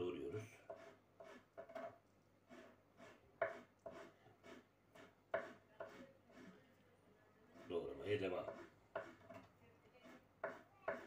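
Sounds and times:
knife cutting on wooden board: 0:02.5 - 0:06.5, 0:08.4 - 0:09.4, 0:10.0 - 0:11.0.

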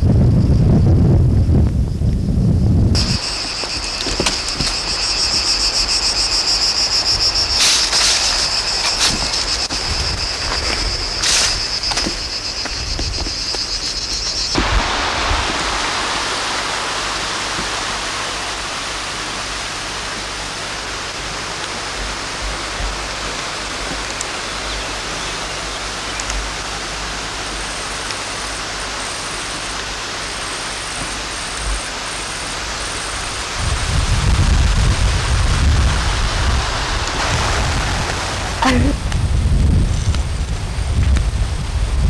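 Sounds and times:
low rumble: 0:00.0 - 0:18.1
steady hiss: 0:00.0 - 0:42.0.

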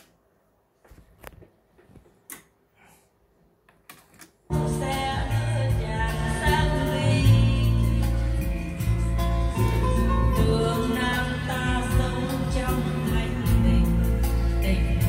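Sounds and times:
music with singing: 0:04.5 - 0:15.0.

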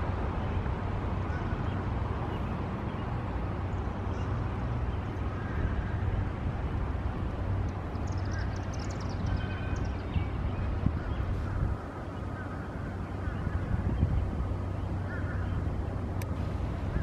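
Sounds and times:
low rumble of street noise: 0:00.0 - 0:17.0
wind on microphone: 0:05.3 - 0:17.0
birds chirping: 0:07.6 - 0:17.0.

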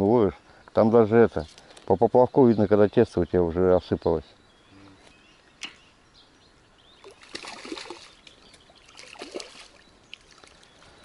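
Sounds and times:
fish splashing in water: 0:07.0 - 0:10.7.

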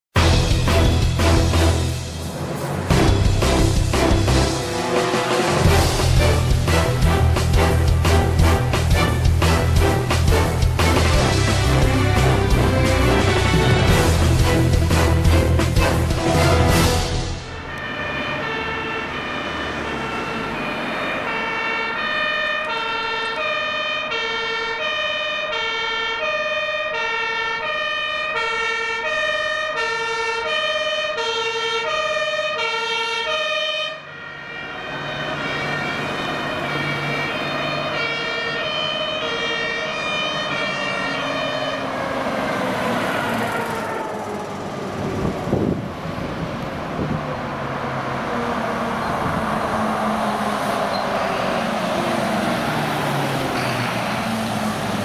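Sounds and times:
truck engine running: 0:00.2 - 0:17.7, 0:34.8 - 0:55.0
two-tone siren: 0:17.4 - 0:46.4, 0:47.0 - 0:55.0.

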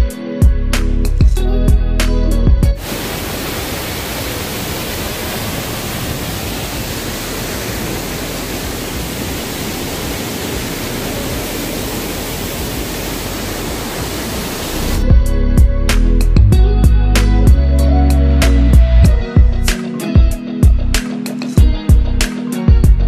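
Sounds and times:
waterfall pouring over rocks: 0:02.8 - 0:15.0.

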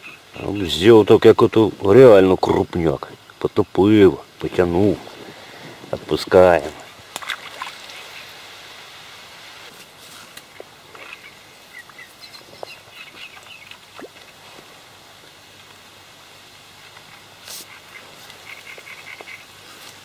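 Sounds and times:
small birds chirping: 0:00.0 - 0:01.8, 0:10.5 - 0:14.4, 0:17.0 - 0:19.8
outdoor hiss: 0:00.0 - 0:20.0.

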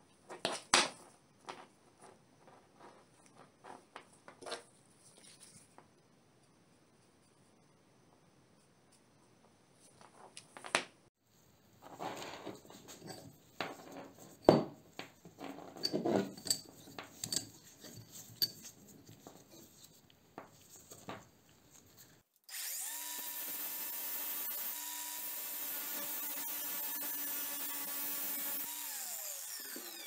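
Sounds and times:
metal chain clinks and knocks: 0:12.9 - 0:18.8
angle grinder running: 0:22.5 - 0:30.0.

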